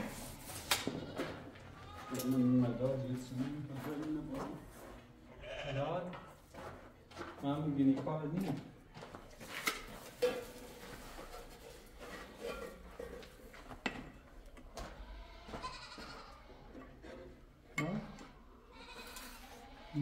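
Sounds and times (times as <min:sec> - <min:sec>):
goats bleating: 0:00.8 - 0:02.5, 0:05.4 - 0:05.9, 0:15.0 - 0:16.8, 0:18.1 - 0:20.0.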